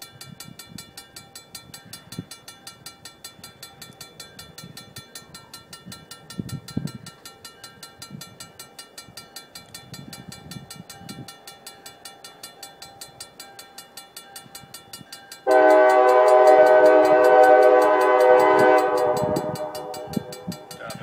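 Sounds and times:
rapid ringing: 0:00.0 - 0:21.0
locomotive air horn blast: 0:15.5 - 0:20.7.

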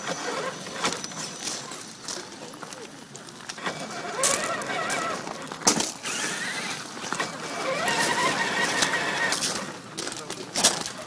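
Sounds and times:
model truck motor whining: 0:00.0 - 0:01.8, 0:03.4 - 0:09.9.

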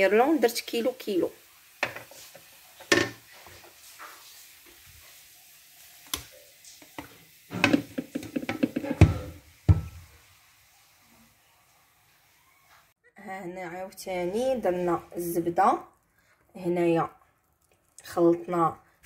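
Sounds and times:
pan knocking on wooden board: 0:07.5 - 0:10.0.

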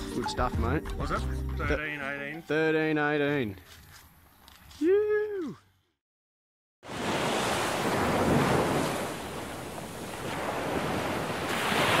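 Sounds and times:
ocean surf rushing: 0:06.9 - 0:12.0.

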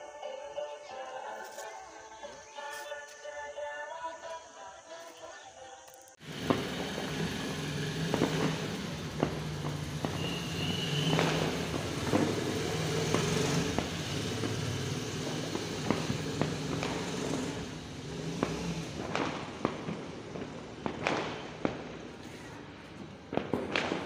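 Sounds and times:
high whistle: 0:10.0 - 0:11.8.

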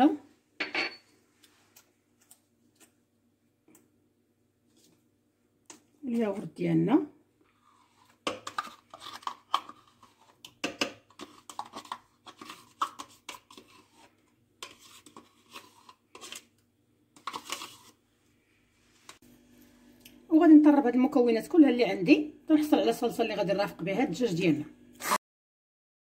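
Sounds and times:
spoon scraping plastic cup: 0:07.5 - 0:16.6, 0:17.2 - 0:18.0
spoon knocking on plastic rim: 0:10.6 - 0:11.7.

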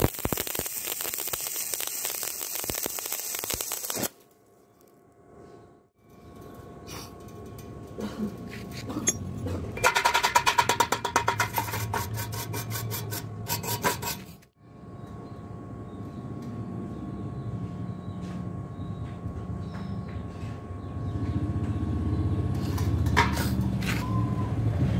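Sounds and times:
metal scraping strokes chipping slag: 0:09.8 - 0:14.5.

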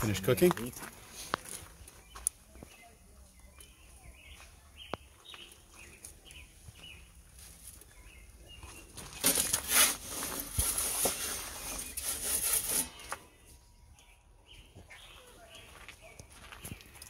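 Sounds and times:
faint bird chirps: 0:12.8 - 0:17.0.

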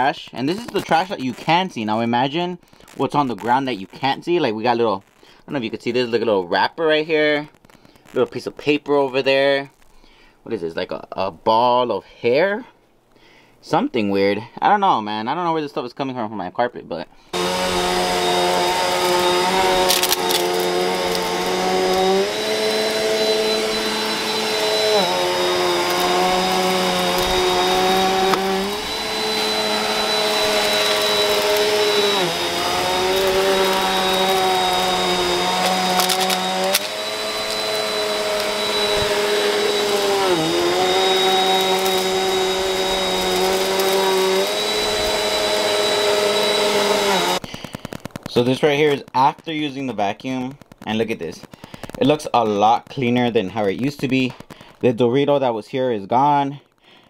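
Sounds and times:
vacuum cleaner running on carpet: 0:17.4 - 0:47.4.

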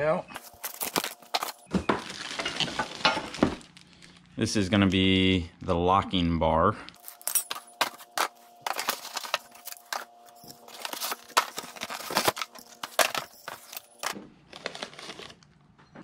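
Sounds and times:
plastic packaging crinkling: 0:00.4 - 0:04.3, 0:07.0 - 0:15.6.

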